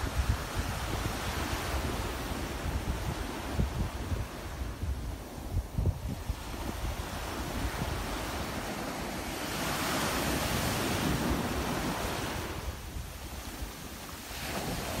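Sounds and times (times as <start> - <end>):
surf breaking on beach: 0.0 - 15.0
wind buffeting microphone: 0.0 - 15.0.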